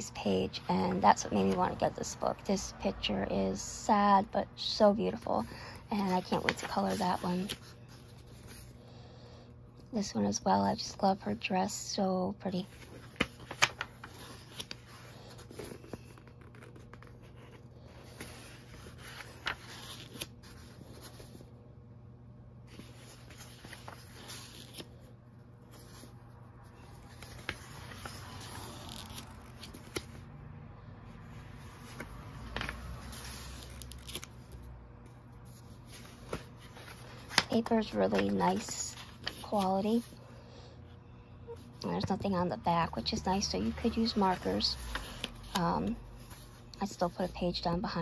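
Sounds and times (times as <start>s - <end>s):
paper pages rustling: 4.7s - 8.8s, 12.5s - 21.5s, 22.7s - 30.2s, 31.3s - 40.2s, 43.4s - 47.4s.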